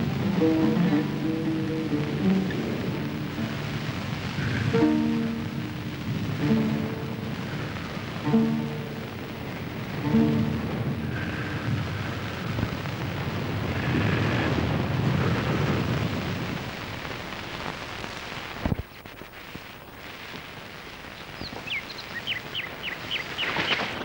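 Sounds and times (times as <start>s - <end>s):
surf breaking on rocks: 0.0s - 17.0s, 22.2s - 24.0s
quiet hiss: 0.0s - 24.0s.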